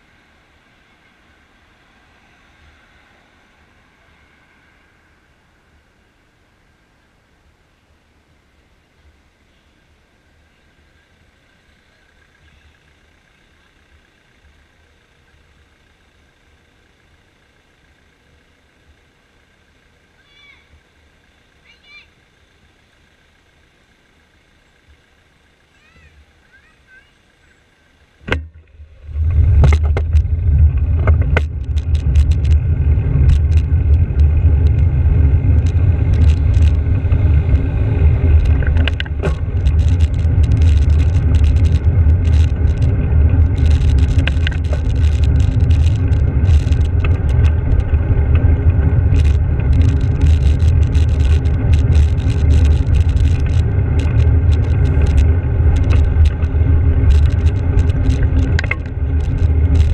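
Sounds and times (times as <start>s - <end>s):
bicycle tyre rumble: 27.3s - 59.9s
small rattles and clicks: 28.3s - 59.9s
wind buffeting microphone: 29.0s - 59.9s.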